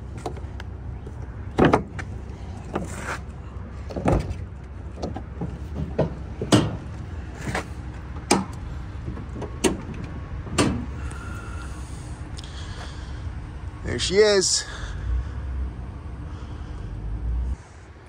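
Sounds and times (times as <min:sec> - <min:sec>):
steady low rumble: 0:00.0 - 0:18.0
truck hood clunks and knocks: 0:01.5 - 0:02.1, 0:03.9 - 0:10.9.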